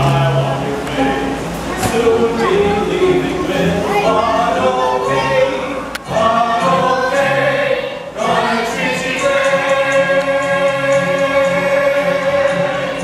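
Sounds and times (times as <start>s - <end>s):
voices singing together: 0.0s - 13.0s.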